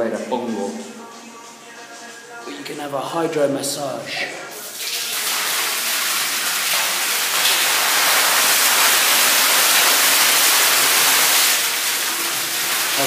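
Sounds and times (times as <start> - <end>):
water jet splashing on tiled floor: 4.6 - 13.0.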